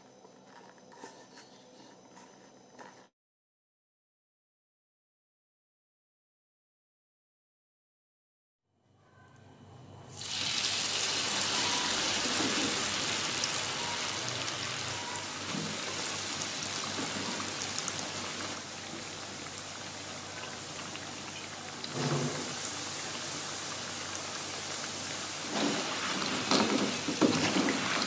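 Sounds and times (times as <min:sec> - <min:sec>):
potatoes sizzling in hot oil: 0:10.2 - 0:28.0.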